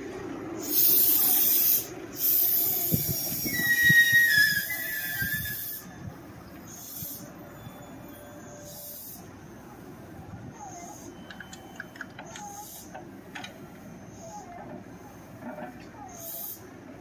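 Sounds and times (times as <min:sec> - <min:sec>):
air brakes hissing: 0:00.5 - 0:10.0, 0:10.6 - 0:16.7
brake squeal: 0:00.6 - 0:10.0, 0:10.6 - 0:13.0
low clunks from train: 0:11.2 - 0:13.8, 0:14.4 - 0:16.4.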